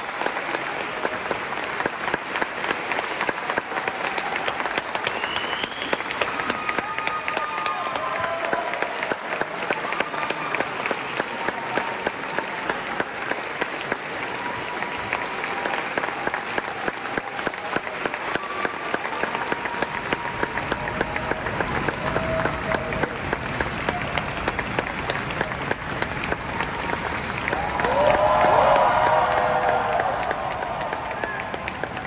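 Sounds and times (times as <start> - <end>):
audience applauding: 0.0 - 32.0.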